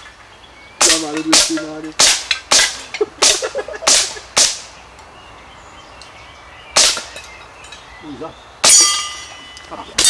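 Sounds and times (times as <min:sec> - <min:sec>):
airgun shots: 0:00.8 - 0:04.7, 0:06.8 - 0:07.1.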